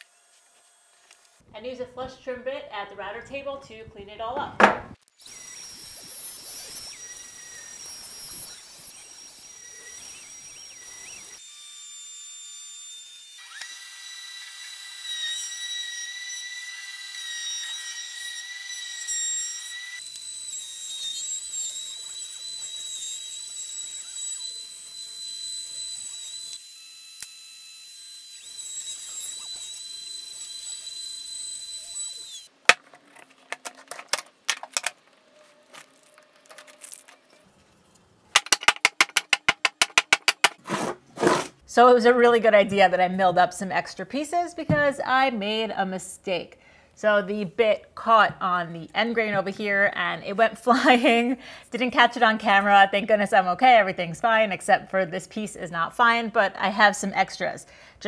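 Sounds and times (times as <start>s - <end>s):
wood knocks and clatters: 4.4s - 5.0s, 38.4s - 41.4s
router motor whining: 5.1s - 32.5s.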